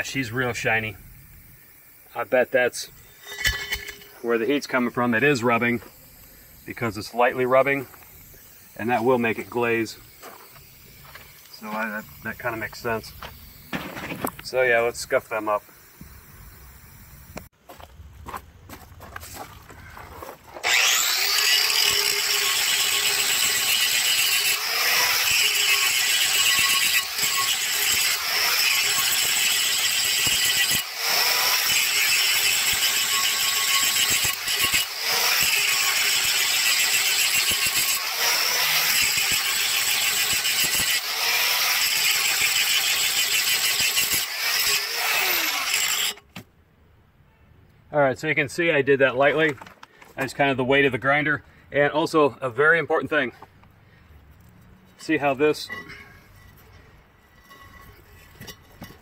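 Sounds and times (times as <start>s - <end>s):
angle grinder grinding metal: 0.0s - 17.5s, 20.6s - 46.3s, 55.0s - 59.0s.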